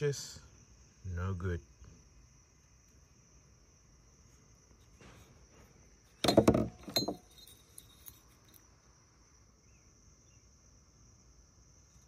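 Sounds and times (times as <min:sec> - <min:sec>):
metal parts clinking and clattering: 0:06.2 - 0:08.6.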